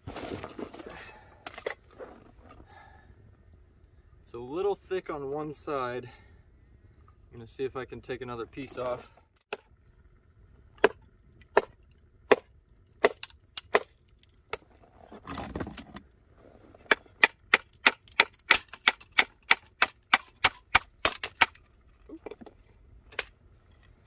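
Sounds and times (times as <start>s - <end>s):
wood splitting: 10.8s - 15.9s, 16.8s - 21.8s, 23.1s - 23.4s.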